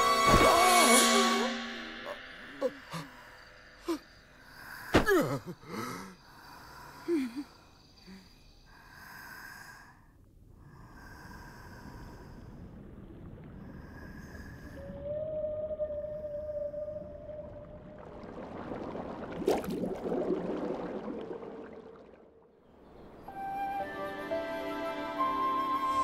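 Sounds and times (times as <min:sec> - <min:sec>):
breathy sounds: 0:00.5 - 0:12.8
underwater ambience: 0:10.6 - 0:26.0.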